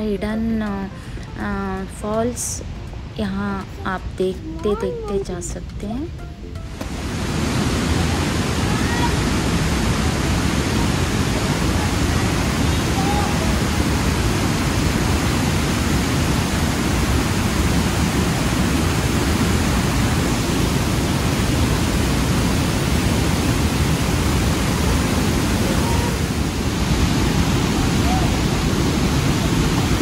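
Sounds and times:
waterfall rushing: 0:06.2 - 0:30.0.

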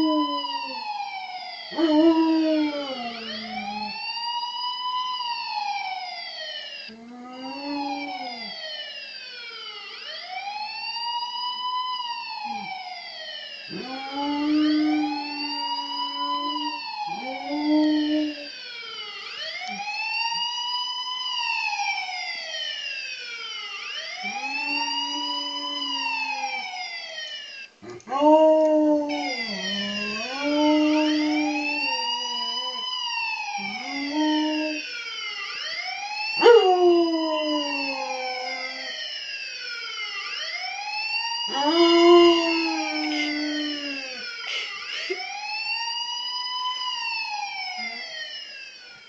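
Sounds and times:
police siren wailing: 0:00.0 - 0:49.0
dog howling: 0:24.2 - 0:26.7, 0:27.8 - 0:32.9, 0:33.6 - 0:34.8, 0:36.4 - 0:39.0, 0:41.5 - 0:44.2.

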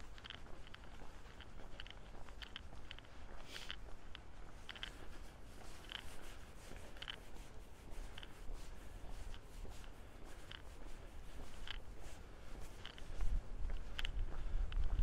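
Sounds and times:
wind on microphone: 0:07.2 - 0:15.0.

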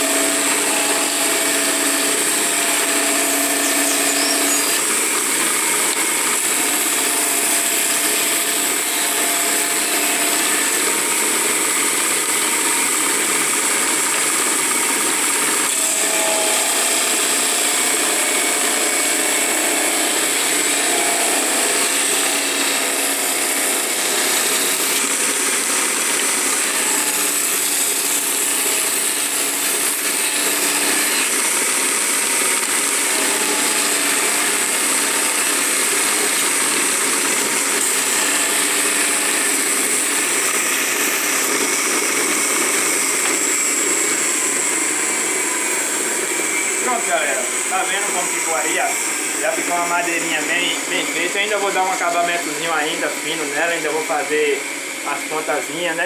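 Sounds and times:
drum sander motor running: 0:00.0 - 0:56.0
wood sanding hiss: 0:00.0 - 0:56.0.

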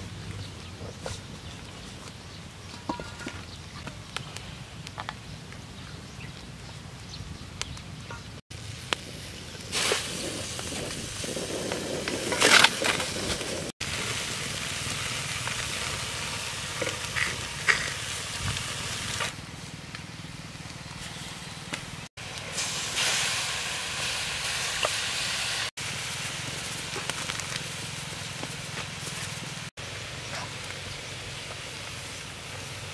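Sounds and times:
wood fire crackling: 0:00.1 - 0:32.9
fish frying in a wok: 0:08.6 - 0:19.4, 0:22.0 - 0:32.9.

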